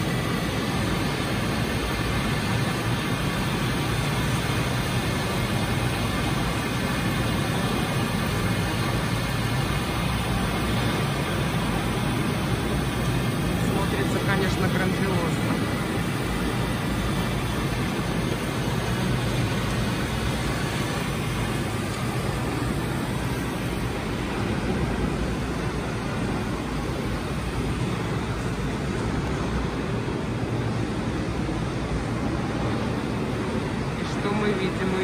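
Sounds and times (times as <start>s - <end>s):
falling water over loudspeakers: 0.0s - 29.8s.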